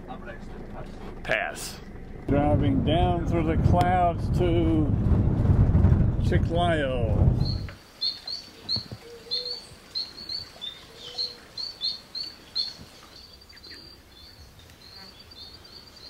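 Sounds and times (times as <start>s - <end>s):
bird chirping: 7.4s - 16.0s.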